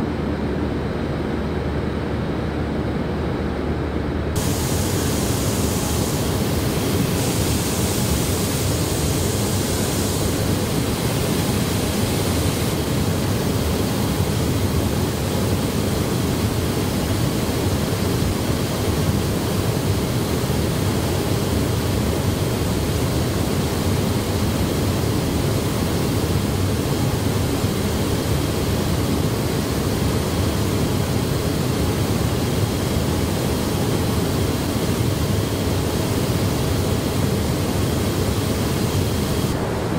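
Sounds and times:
factory floor din: 0:04.4 - 0:13.9.

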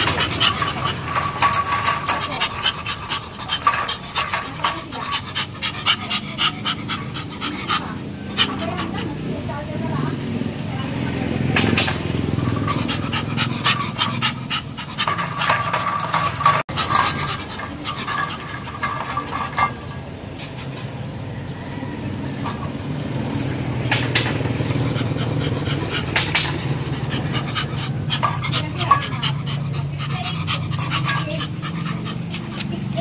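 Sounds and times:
wire crate rattling: 0:00.0 - 0:07.8, 0:11.4 - 0:20.1
small dog panting: 0:00.0 - 0:20.0, 0:23.4 - 0:33.0.

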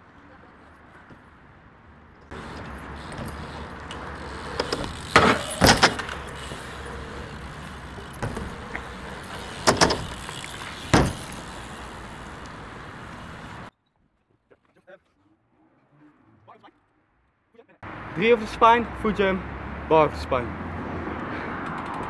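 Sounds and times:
bike tyres rolling on concrete: 0:02.3 - 0:13.7
bike knocking on ramps: 0:02.4 - 0:13.7.

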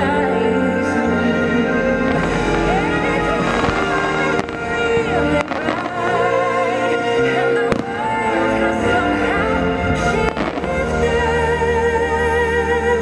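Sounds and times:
fireworks show music: 0:00.0 - 0:13.0
firework bangs: 0:02.0 - 0:08.2, 0:09.8 - 0:10.8.

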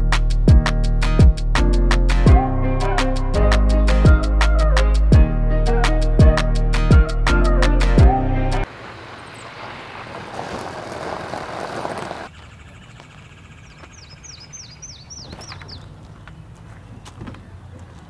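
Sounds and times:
outdoor background: 0:00.0 - 0:18.0
rushing vehicle noise: 0:08.6 - 0:12.3
bird singing high chirps: 0:12.3 - 0:17.6.

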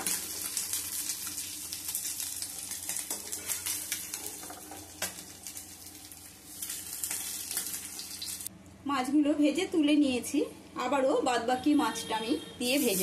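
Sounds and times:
fish sizzling in oil: 0:00.0 - 0:08.5, 0:12.6 - 0:13.0.

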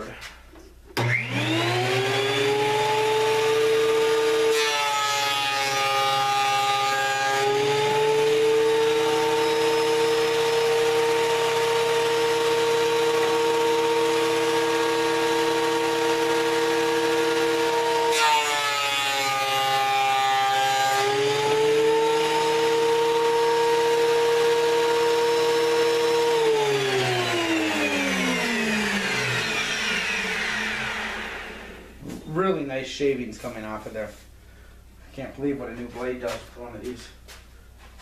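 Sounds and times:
motor winding down: 0:01.0 - 0:03.1, 0:25.8 - 0:32.0
board feeding through planer: 0:01.0 - 0:32.0
thickness planer whining: 0:01.0 - 0:32.3.

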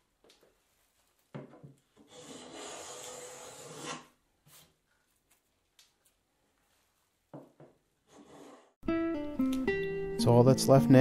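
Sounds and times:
hand plane shaving wood: 0:02.0 - 0:04.1, 0:08.1 - 0:08.8.

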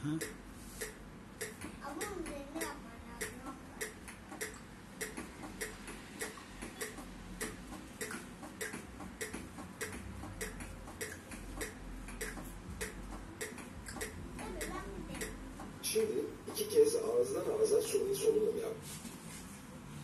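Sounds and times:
metronome ticking: 0:00.2 - 0:15.4.

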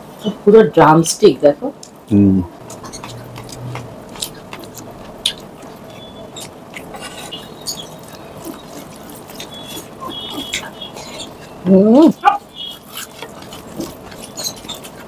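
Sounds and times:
wet squishing of food by hand: 0:02.6 - 0:15.0.

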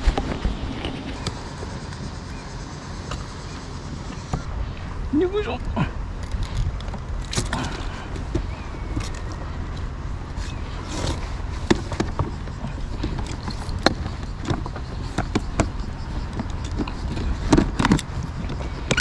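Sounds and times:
steady low rumble: 0:00.0 - 0:19.0
knocks and plastic clatter: 0:11.6 - 0:19.0.

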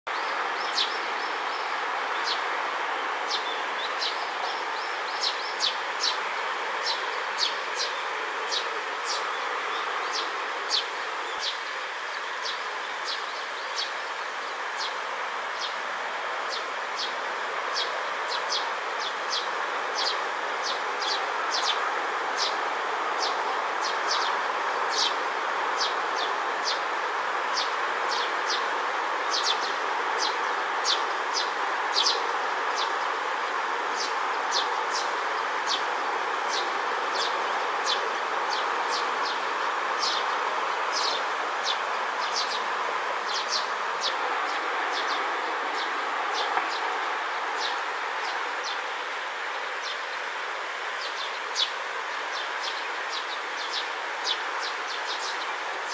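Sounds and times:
sparrow chirping: 0:43.3 - 0:46.5.

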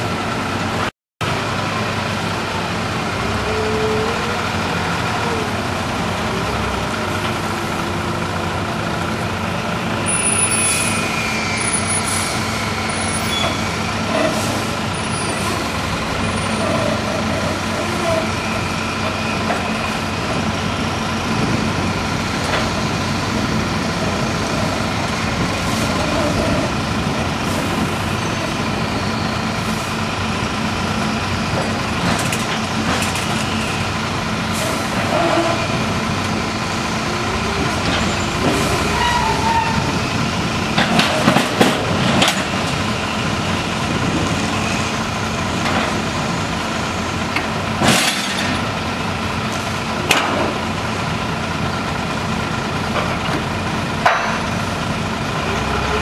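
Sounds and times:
forklift engine running: 0:00.0 - 0:56.0
high squeaks: 0:37.6 - 0:40.1.

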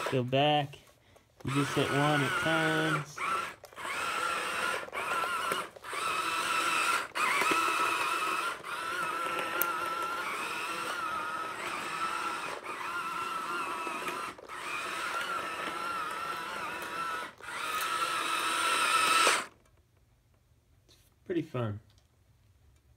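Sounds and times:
toy tank motors whining: 0:00.0 - 0:00.4, 0:01.4 - 0:19.8.

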